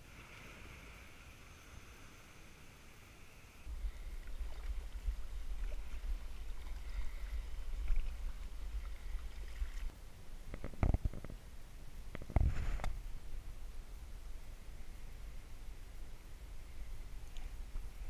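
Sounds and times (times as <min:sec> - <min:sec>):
water rumbling against hull: 0:03.7 - 0:11.5.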